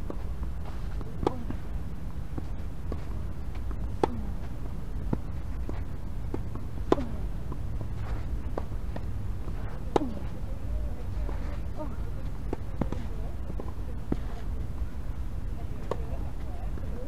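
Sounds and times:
racket striking tennis ball: 0.0s - 10.4s, 15.8s - 16.2s
tennis ball bouncing: 0.0s - 14.9s, 15.6s - 17.0s
steady low rumble: 0.0s - 17.0s.

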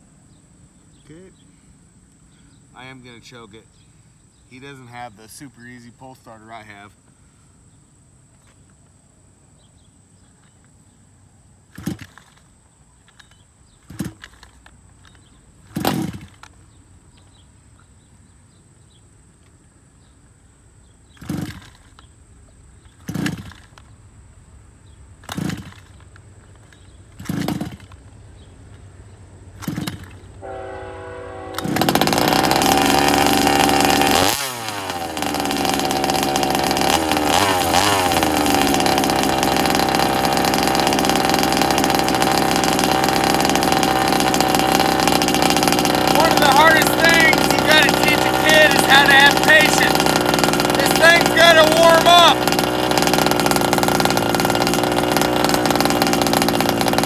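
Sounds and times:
pull-cord yanks: 11.7s - 16.5s, 21.2s - 22.1s, 22.9s - 23.9s, 25.2s - 28.0s, 29.6s - 30.3s, 31.6s - 57.0s
small two-stroke engine running: 11.7s - 16.5s, 21.1s - 22.1s, 22.8s - 23.9s, 25.2s - 28.5s, 29.5s - 30.4s, 31.5s - 57.0s.

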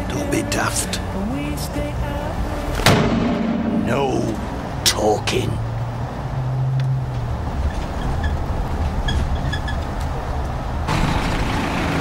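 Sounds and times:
engine and road noise: 0.0s - 12.0s
van engine rumbling: 3.8s - 12.0s.

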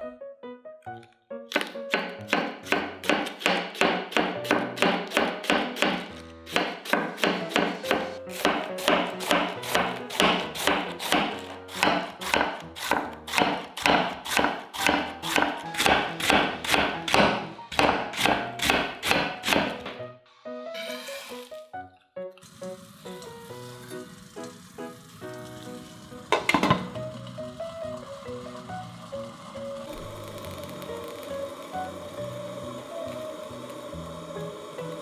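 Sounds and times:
background music: 0.0s - 35.0s
knife chopping cabbage on board: 1.5s - 20.0s.

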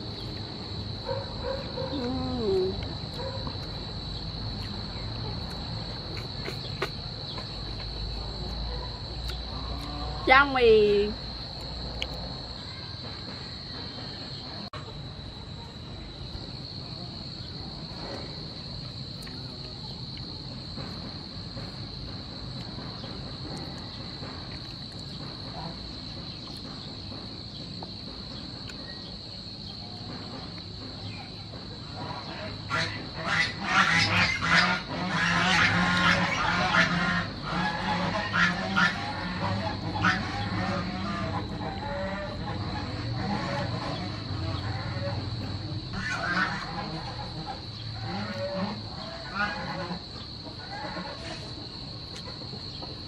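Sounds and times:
insects trilling: 0.0s - 53.0s
poultry calling: 32.0s - 45.3s, 46.0s - 50.0s, 50.6s - 51.6s.

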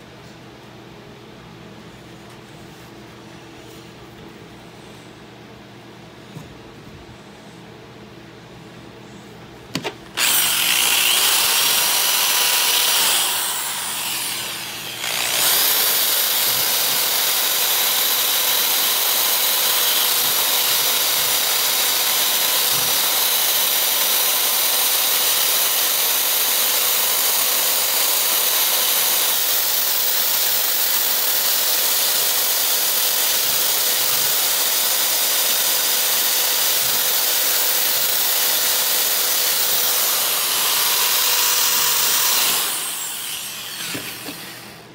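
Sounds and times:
drill sanding disc on metal: 10.2s - 44.6s.

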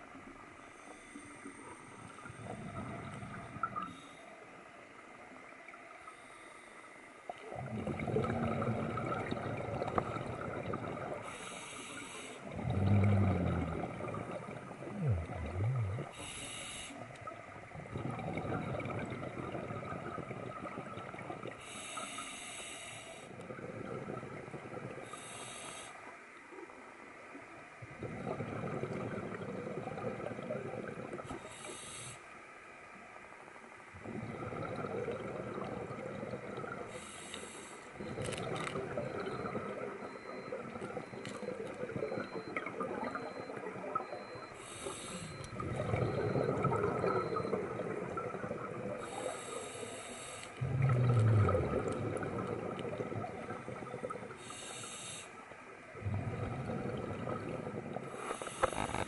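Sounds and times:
exhaust bubbling underwater: 2.0s - 3.9s, 7.4s - 11.4s, 12.4s - 16.2s, 17.2s - 21.6s, 23.3s - 25.2s, 27.8s - 31.4s, 34.0s - 37.1s, 37.9s - 49.5s, 50.6s - 54.6s, 55.9s - 59.0s
regulator inhalation hiss: 11.3s - 12.4s, 16.2s - 17.0s, 21.6s - 23.3s, 25.1s - 26.1s, 31.4s - 32.3s, 44.6s - 45.3s, 49.0s - 50.6s, 54.4s - 55.4s, 58.2s - 59.0s.

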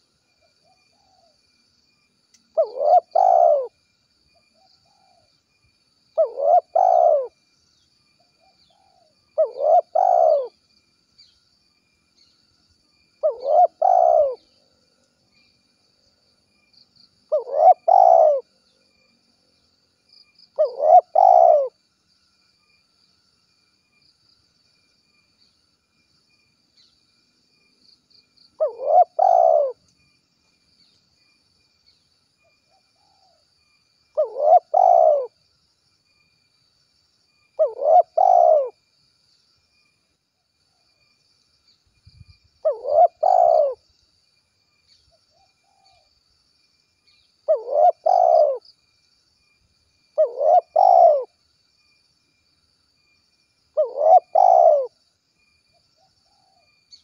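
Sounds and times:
dove cooing: 2.5s - 3.8s, 6.2s - 7.4s, 8.4s - 10.6s, 13.2s - 14.5s, 17.3s - 18.5s, 20.6s - 21.8s, 28.6s - 29.8s, 34.1s - 35.4s, 37.6s - 38.8s, 42.6s - 43.8s, 47.5s - 48.6s, 50.2s - 51.4s, 53.8s - 55.0s.

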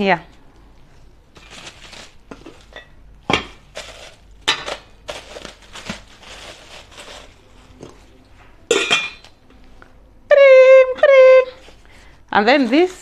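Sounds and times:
plastic wrapping crinkling: 1.3s - 2.8s, 3.6s - 8.1s
steel pots and lids clinking: 8.7s - 9.3s.

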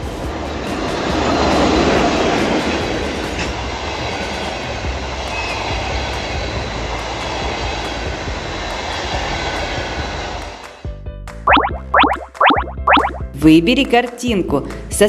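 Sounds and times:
electric locomotive passing: 0.0s - 10.8s
train wheels rushing on rails: 0.0s - 10.8s.

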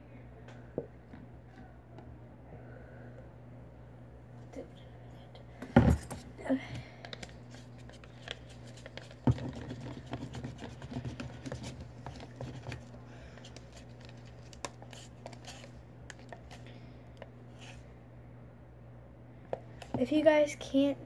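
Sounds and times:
spoon scraping in plastic cup: 7.5s - 12.9s, 13.5s - 16.6s.

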